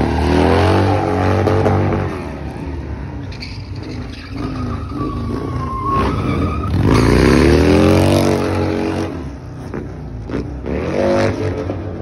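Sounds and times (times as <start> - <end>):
motorcycle engine revving: 3.8 - 12.0.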